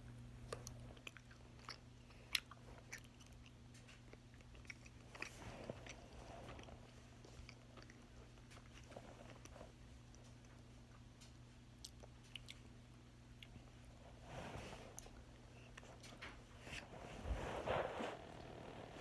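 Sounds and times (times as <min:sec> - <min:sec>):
chewing licorice: 0:00.0 - 0:14.0
faint low hum: 0:00.0 - 0:19.0.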